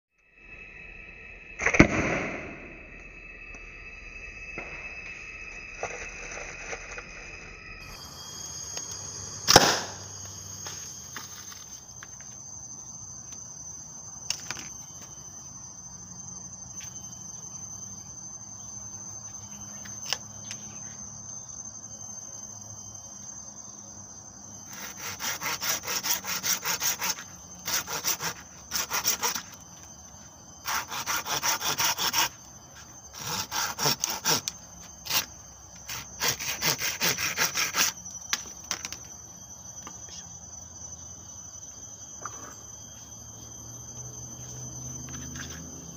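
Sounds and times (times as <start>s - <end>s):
high-pitched insect drone: 0.1s - 45.9s
sharp crack: 1.6s - 2.6s, 9.4s - 10.1s
hand saw cutting wood: 24.7s - 29.6s, 30.6s - 32.4s, 33.1s - 38.0s.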